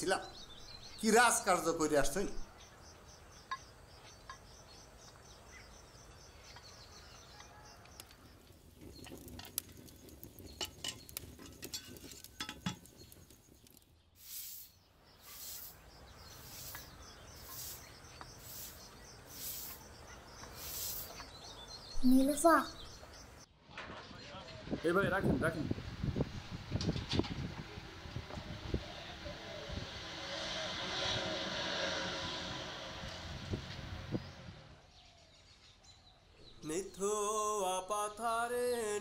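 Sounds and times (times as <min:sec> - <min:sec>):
insects chirping: 0:09.0 - 0:23.4
short hissing pulses: 0:14.2 - 0:21.2.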